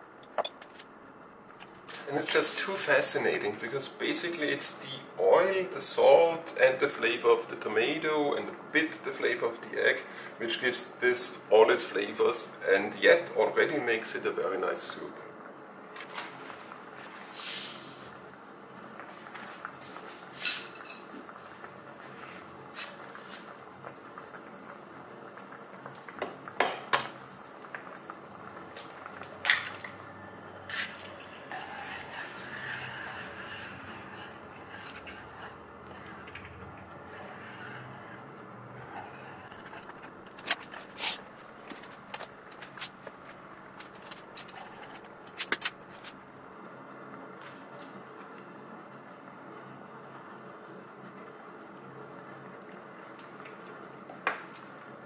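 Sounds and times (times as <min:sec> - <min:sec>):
steady low hiss: 0:00.0 - 0:53.0
utensils clinking against dishes: 0:20.4 - 0:21.1
chopsticks stirring in pan: 0:30.7 - 0:46.2.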